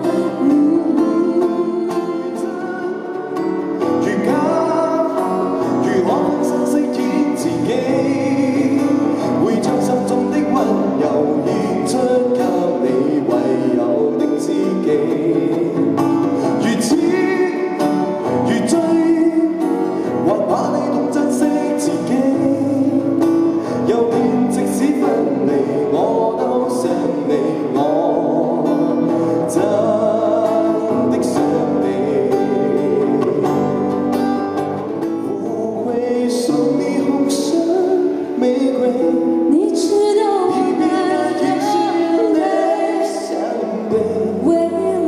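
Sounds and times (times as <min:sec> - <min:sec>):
person singing: 0:00.0 - 0:34.4, 0:35.2 - 0:45.0
acoustic guitar strumming: 0:00.0 - 0:45.0.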